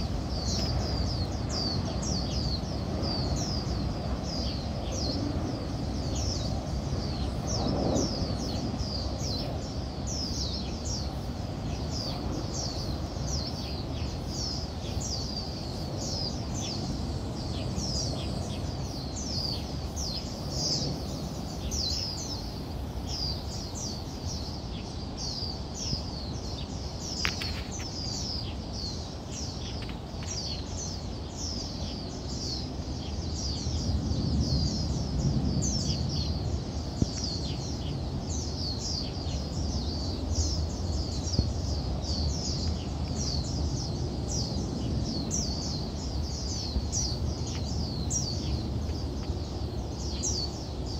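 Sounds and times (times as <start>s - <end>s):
distant jet airliner rumble: 0.0s - 24.3s.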